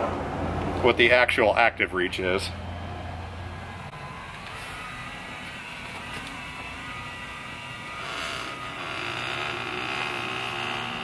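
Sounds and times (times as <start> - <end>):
electric motor whine: 2.8 - 11.0.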